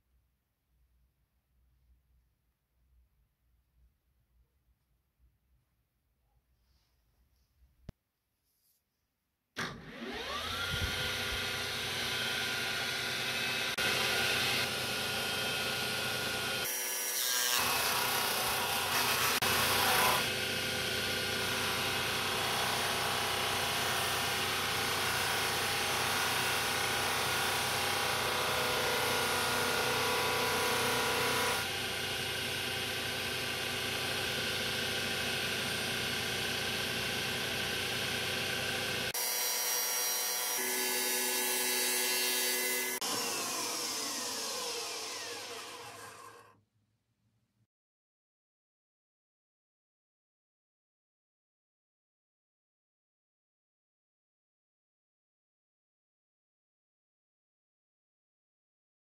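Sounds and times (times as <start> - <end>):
polishing wheel machine hum: 9.9 - 16.7, 17.6 - 46.4.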